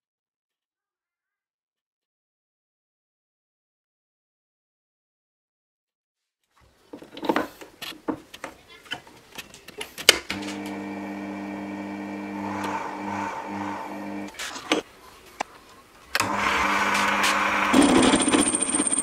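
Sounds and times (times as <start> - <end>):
lathe motor humming: 10.3 - 14.8, 16.2 - 18.6.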